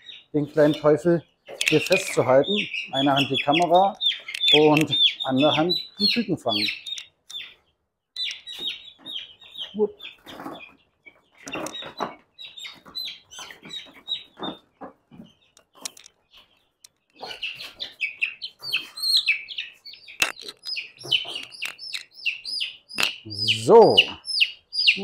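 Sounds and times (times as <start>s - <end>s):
chicks peeping: 0.0s - 25.0s
sharp click: 20.2s - 20.8s.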